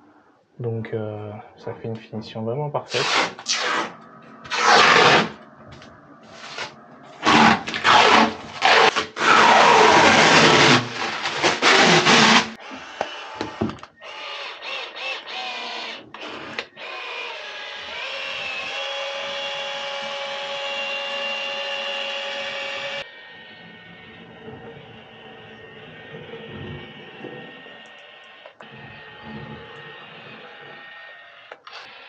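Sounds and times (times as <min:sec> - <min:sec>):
harsh tool cutting noise: 0:02.9 - 0:05.4, 0:06.3 - 0:23.1.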